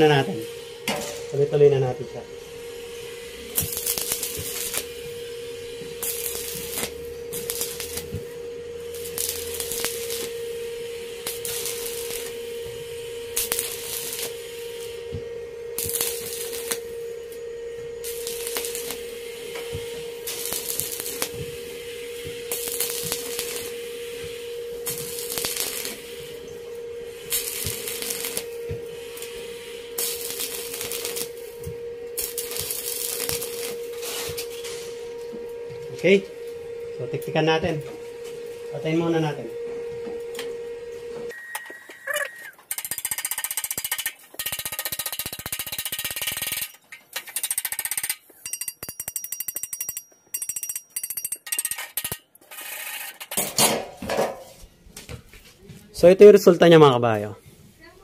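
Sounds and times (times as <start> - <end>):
welding arc crackling: 0.0 - 35.3, 41.3 - 49.0
welder hum: 0.0 - 58.0.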